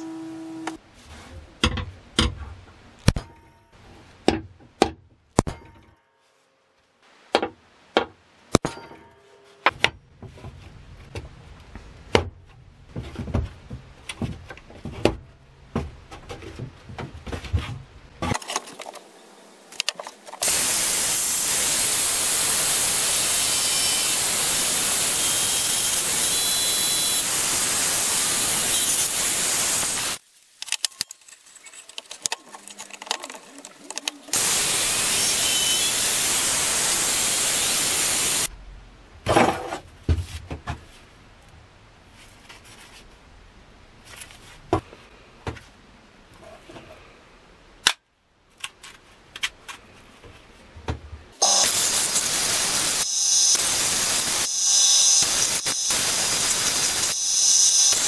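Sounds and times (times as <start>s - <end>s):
drill press boring steel: 51.4s - 58.0s.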